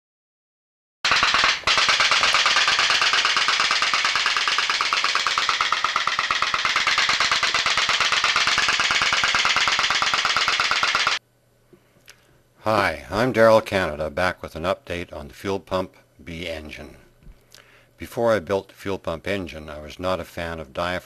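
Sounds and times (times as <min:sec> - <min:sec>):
putt-putt boat engine popping: 0:01.1 - 0:11.2.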